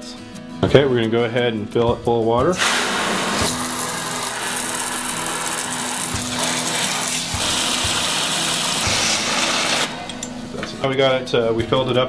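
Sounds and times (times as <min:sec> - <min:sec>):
water spraying from hose: 0:02.6 - 0:09.9.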